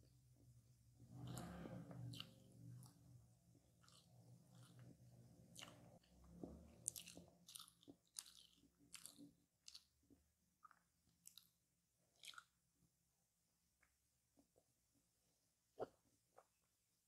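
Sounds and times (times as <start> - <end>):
soft mouth sounds: 1.0 - 9.9, 12.2 - 12.6
crisp pastry crunching: 5.5 - 9.9.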